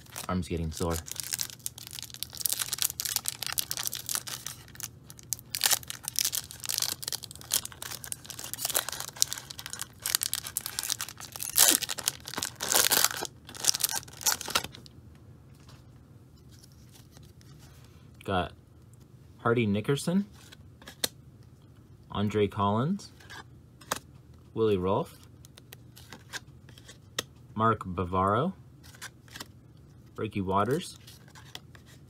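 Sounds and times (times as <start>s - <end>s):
foil crackling rips and rustles: 0.0s - 14.8s
foil wrapper tearing and crinkling: 0.0s - 14.8s.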